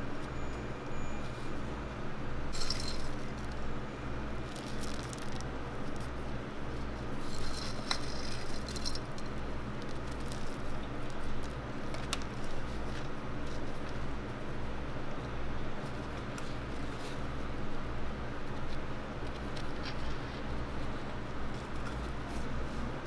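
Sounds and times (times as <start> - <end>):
cereal rings rattling: 2.6 - 3.2, 4.5 - 5.4, 7.3 - 9.2.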